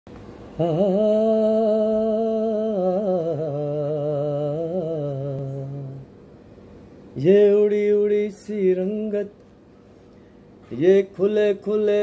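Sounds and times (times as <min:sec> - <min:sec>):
man singing a wordless note: 0:00.6 - 0:06.1, 0:07.2 - 0:09.4, 0:10.7 - 0:12.0.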